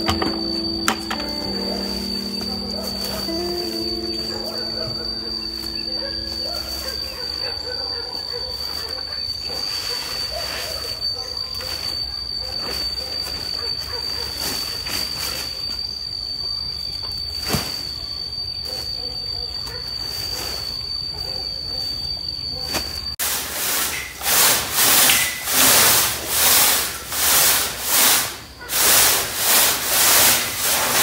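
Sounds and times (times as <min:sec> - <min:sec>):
steady high whine: 0:00.0 - 0:09.6
sprayer hissing: 0:23.2 - 0:31.0.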